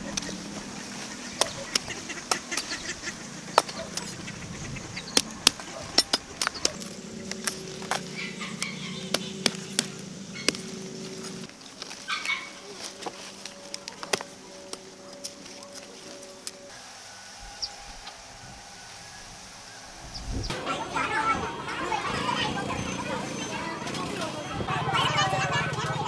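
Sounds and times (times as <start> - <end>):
geese honking: 0.0 - 26.0.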